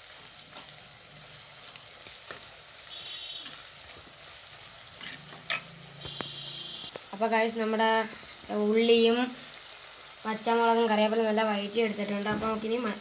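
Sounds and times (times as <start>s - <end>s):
vegetables sizzling in hot oil: 0.0s - 13.0s
spoon clacking on pot: 5.4s - 6.2s.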